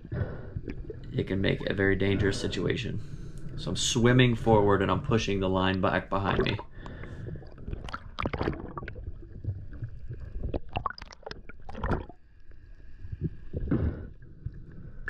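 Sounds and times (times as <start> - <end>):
faint steady whine: 0.0 - 7.5
underwater gurgling and rushing: 0.0 - 15.0.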